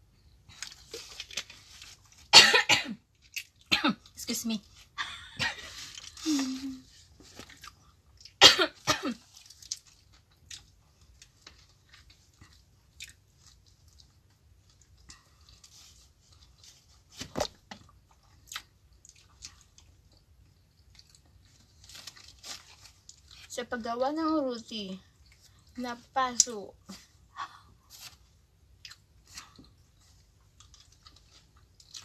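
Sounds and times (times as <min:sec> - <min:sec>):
throaty cough: 0:02.3 - 0:03.0, 0:08.4 - 0:09.2
people chewing: 0:05.6 - 0:08.4, 0:09.2 - 0:16.8, 0:17.8 - 0:23.5, 0:28.8 - 0:32.0.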